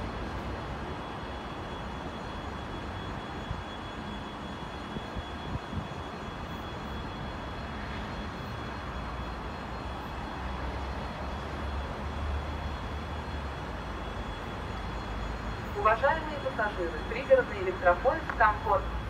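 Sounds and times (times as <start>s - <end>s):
distant vehicle engines rumbling: 8.1s - 19.0s.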